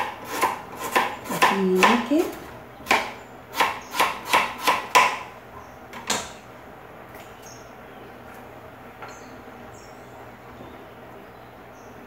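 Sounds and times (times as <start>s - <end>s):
knife chopping on cutting board: 0.0s - 2.1s, 2.8s - 5.2s.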